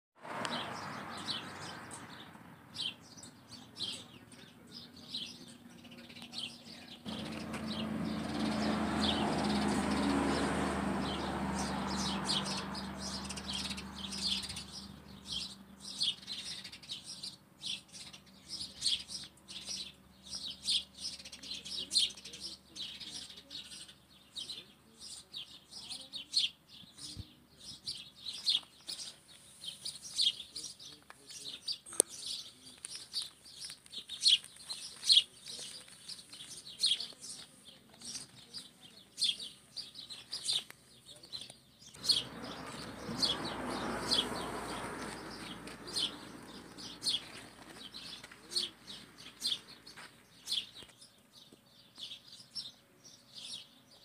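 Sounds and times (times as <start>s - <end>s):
small birds chirping: 0.4s - 54.0s.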